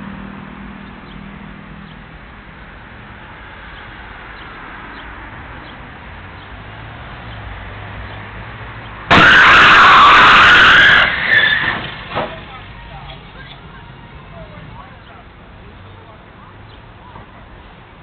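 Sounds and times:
car engine approaching: 0:00.0 - 0:18.0
faint road noise: 0:00.0 - 0:18.0
loud car crash: 0:09.1 - 0:12.6.

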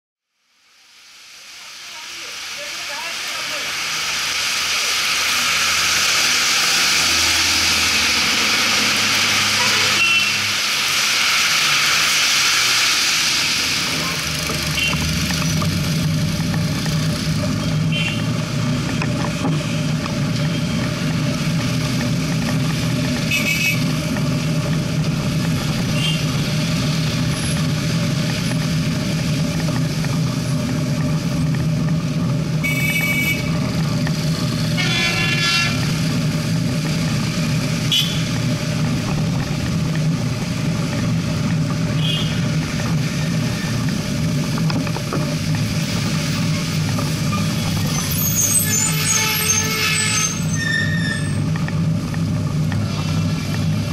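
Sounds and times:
heavy rain hissing: 0:00.3 - 0:53.9
vehicles passing on wet road: 0:00.4 - 0:53.9
traffic rumble: 0:00.6 - 0:53.9
vehicle horn toots: 0:09.6 - 0:10.5, 0:14.8 - 0:15.0, 0:17.9 - 0:18.3, 0:23.2 - 0:23.9, 0:25.9 - 0:26.3, 0:32.6 - 0:33.6, 0:34.7 - 0:35.9, 0:37.9 - 0:38.4, 0:42.0 - 0:42.4, 0:48.8 - 0:51.0.

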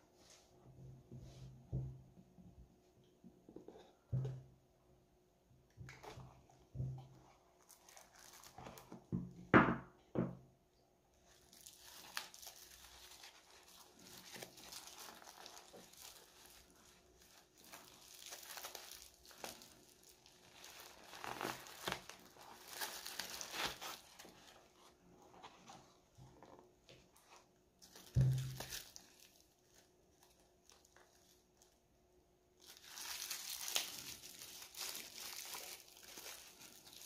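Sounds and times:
packaging crinkling and tearing: 0:05.9 - 0:09.1, 0:11.2 - 0:31.8, 0:32.6 - 0:37.0.

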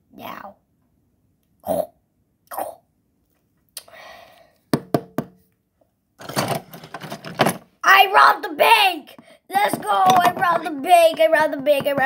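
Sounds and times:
plastic toy figures knocking: 0:04.8 - 0:05.4, 0:06.2 - 0:07.6, 0:09.5 - 0:12.0.

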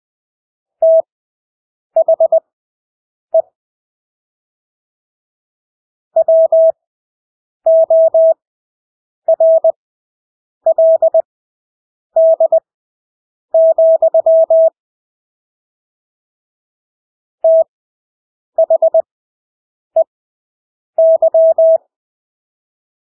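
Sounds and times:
morse code beeps: 0:00.8 - 0:01.1, 0:06.2 - 0:06.8, 0:07.7 - 0:08.4, 0:09.3 - 0:09.7, 0:10.7 - 0:11.2, 0:12.2 - 0:12.6, 0:13.6 - 0:14.8, 0:17.4 - 0:17.7, 0:18.6 - 0:19.1, 0:21.0 - 0:21.8.

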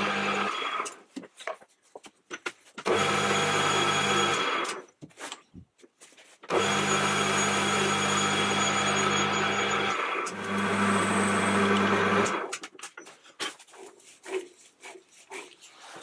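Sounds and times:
lathe motor hum: 0:00.0 - 0:00.8, 0:02.9 - 0:04.7, 0:06.5 - 0:12.5
drill cutting into brass: 0:02.9 - 0:04.8, 0:06.5 - 0:12.5.

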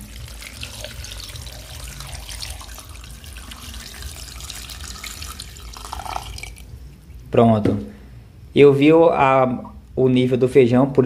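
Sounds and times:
water pouring into a pot: 0:00.0 - 0:06.7.

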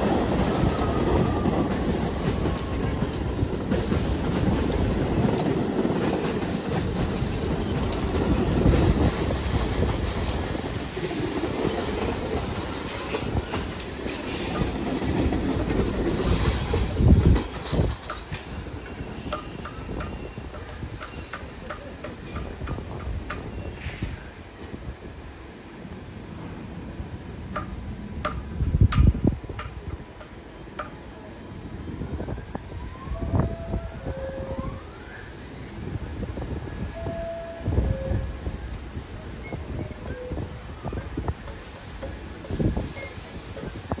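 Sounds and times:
subway train rumbling past: 0:00.0 - 0:44.0
wheels clacking over rail joints: 0:11.2 - 0:23.6.

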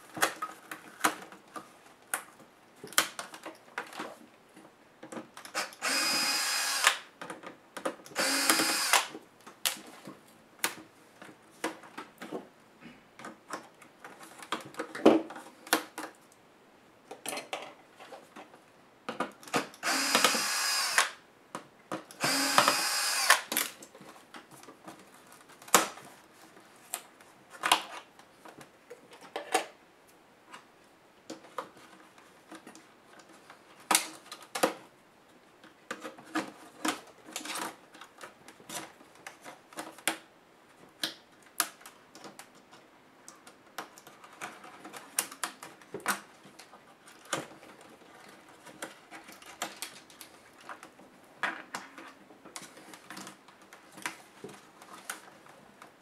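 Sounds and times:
electric screwdriver running: 0:05.6 - 0:07.0, 0:08.2 - 0:09.1, 0:19.8 - 0:21.2, 0:22.2 - 0:23.5.

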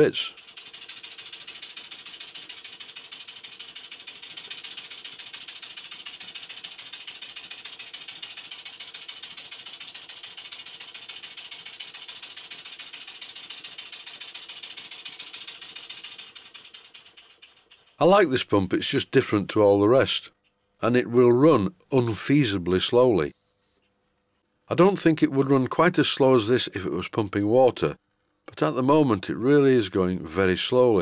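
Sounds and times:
fast mechanical ticking: 0:00.0 - 0:19.0.

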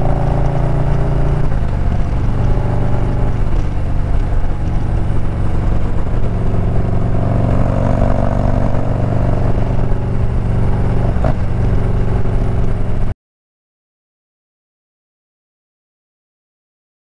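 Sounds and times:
motorcycle engine cruising: 0:00.0 - 0:13.1
road noise: 0:00.0 - 0:13.2.

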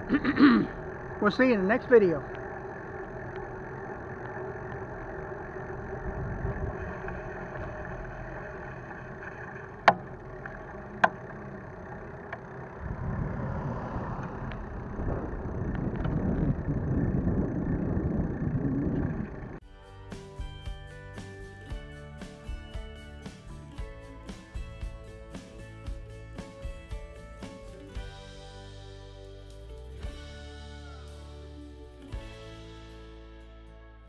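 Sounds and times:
bicycle riding hum: 0:00.0 - 0:33.7
tyre and wind rumble: 0:02.1 - 0:10.8, 0:12.4 - 0:19.6.

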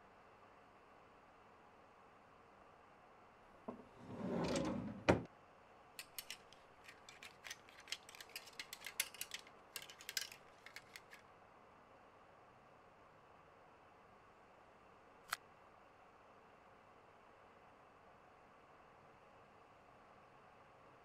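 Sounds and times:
metal mechanism clicks and taps: 0:06.0 - 0:11.2.

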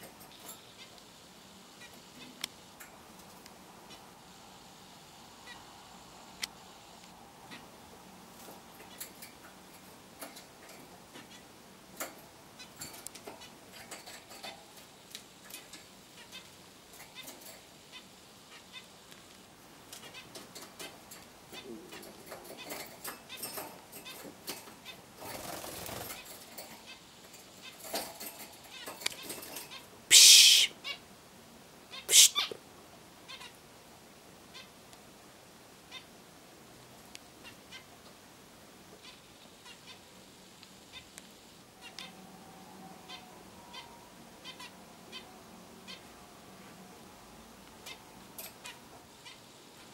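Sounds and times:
birds chirping and ticking: 0:00.0 - 0:31.1, 0:38.9 - 0:42.2, 0:43.1 - 0:46.8, 0:47.6 - 0:49.9
soft short bird calls: 0:29.7 - 0:31.0, 0:31.9 - 0:32.6
harsh hissy bird calls: 0:30.1 - 0:31.0, 0:31.9 - 0:32.6.

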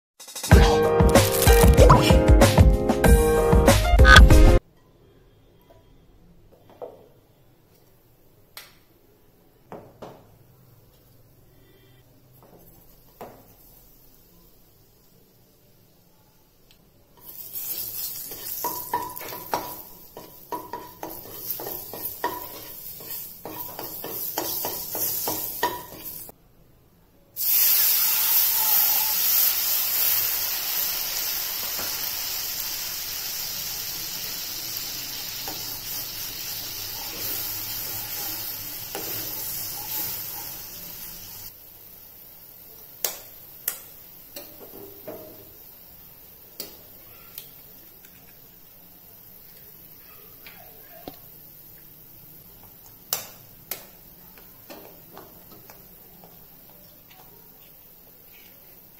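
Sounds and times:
oil and spices sizzling: 0:00.5 - 0:02.2, 0:10.8 - 0:26.4, 0:27.3 - 0:58.9
liquid frying hiss: 0:11.1 - 0:26.4, 0:27.4 - 0:58.9.

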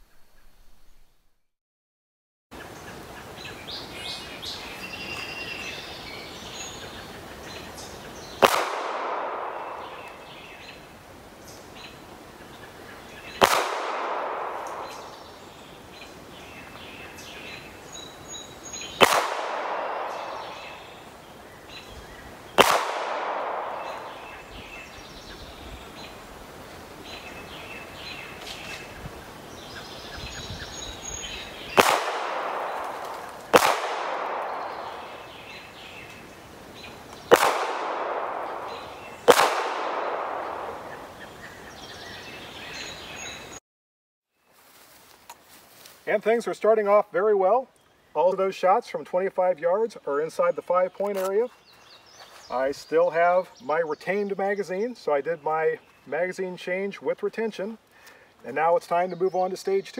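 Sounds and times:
birds chirping: 0:02.6 - 0:43.6, 0:44.4 - 0:59.9
pistol shots with echo: 0:08.4 - 0:10.3, 0:13.4 - 0:15.2, 0:19.0 - 0:20.9, 0:22.6 - 0:24.4, 0:31.7 - 0:35.2, 0:37.3 - 0:41.0.

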